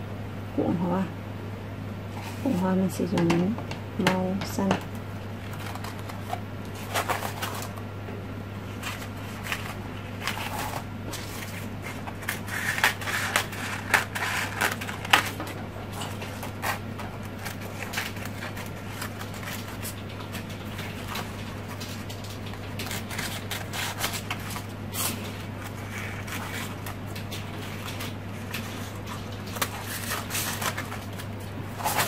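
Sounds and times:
paper crinkling and rustling: 4.6s - 7.9s, 8.6s - 32.0s
scissors snipping paper: 8.8s - 32.0s.

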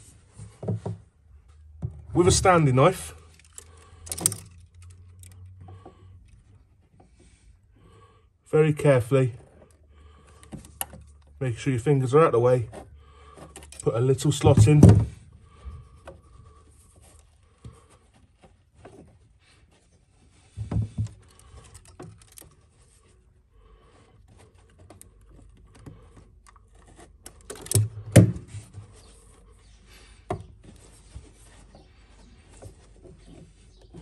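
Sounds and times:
carpet rubbing and scraping: 28.3s - 34.0s.

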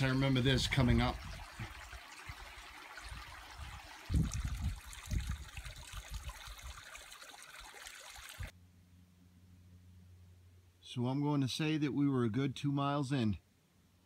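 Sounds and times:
water trickling into rock pool: 0.0s - 8.6s.

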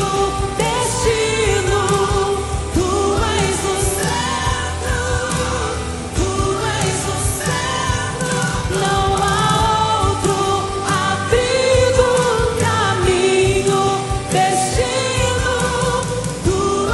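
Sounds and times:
woman singing: 0.0s - 16.9s.

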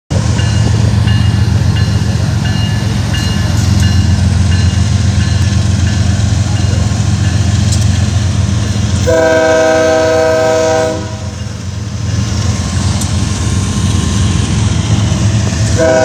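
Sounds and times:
diesel locomotive rumble: 0.1s - 16.0s
locomotive air horn chord: 9.0s - 11.4s, 15.7s - 16.0s.

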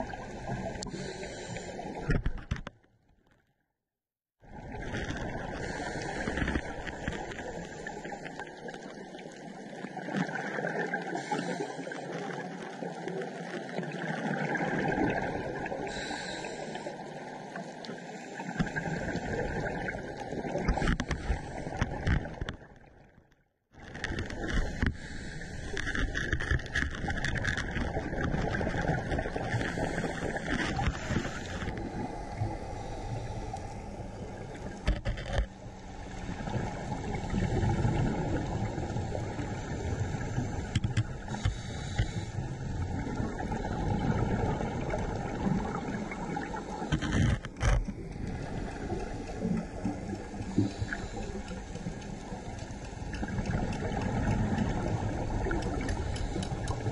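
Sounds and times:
underwater rushing hiss: 5.5s - 6.4s, 15.8s - 17.0s, 29.6s - 34.7s, 36.4s - 47.0s, 48.2s - 51.6s.

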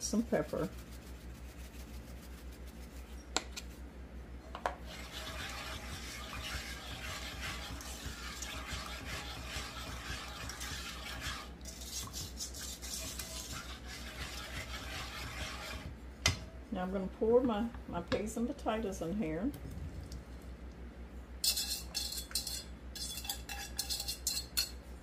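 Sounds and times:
spoon scraping a pan: 4.8s - 15.9s, 21.4s - 24.8s.

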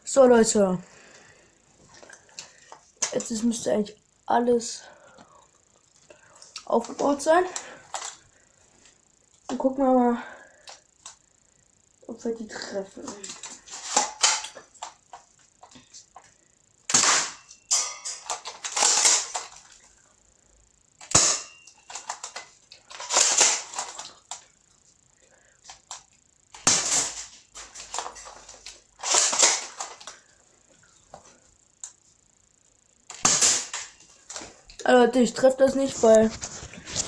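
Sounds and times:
airsoft gun shots: 16.9s - 17.4s, 21.1s - 21.5s, 26.6s - 27.1s, 33.1s - 33.8s.

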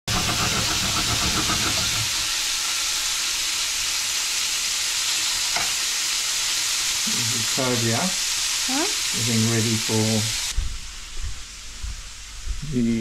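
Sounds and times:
fish sizzling in a pan: 0.1s - 13.0s.

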